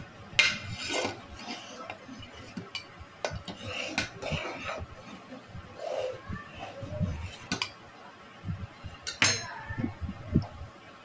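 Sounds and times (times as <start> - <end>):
spoon scraping metal pot: 0.4 - 7.7.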